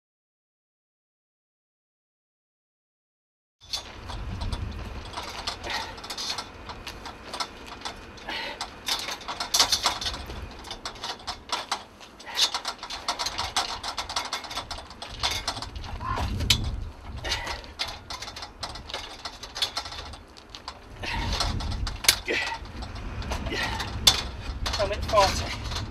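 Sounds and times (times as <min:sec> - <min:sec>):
pry bar clanking on metal grille: 0:03.6 - 0:25.9.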